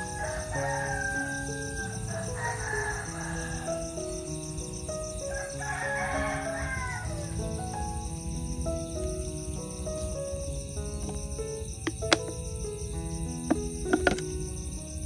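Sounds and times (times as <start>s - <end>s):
rooster crowing: 0.0s - 4.0s, 5.3s - 7.3s
slow music with held notes: 0.0s - 15.0s.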